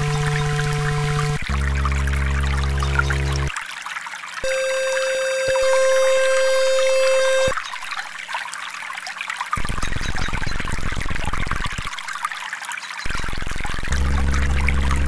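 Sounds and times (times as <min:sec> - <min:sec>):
steady electronic tone: 0:00.0 - 0:03.5, 0:04.4 - 0:07.6
steady low tone: 0:00.0 - 0:03.5, 0:13.7 - 0:15.0
water trickling: 0:00.0 - 0:15.0
water pouring: 0:07.5 - 0:15.0.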